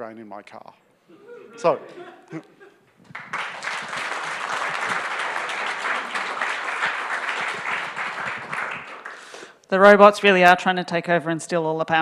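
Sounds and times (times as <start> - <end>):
audience applauding: 3.0 - 9.5.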